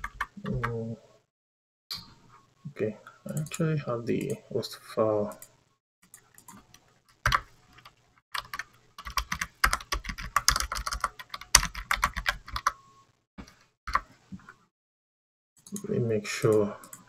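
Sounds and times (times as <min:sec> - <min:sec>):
keyboard typing: 0:00.0 - 0:00.8, 0:05.3 - 0:12.8.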